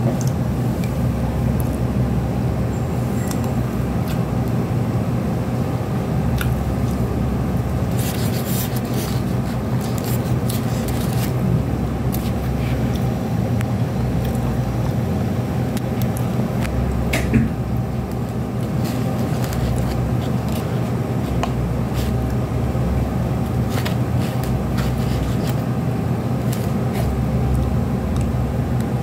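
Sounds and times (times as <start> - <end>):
low machine hum: 0.0 - 29.0.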